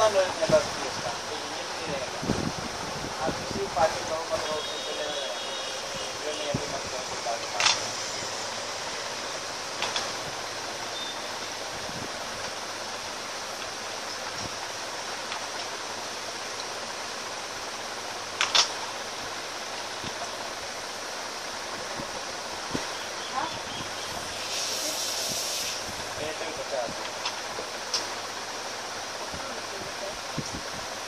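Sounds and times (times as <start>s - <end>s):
steady background hiss: 0.0s - 31.0s.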